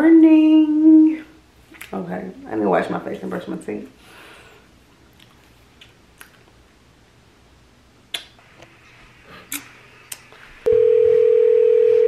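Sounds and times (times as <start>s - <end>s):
phone ringtone: 10.7s - 12.0s.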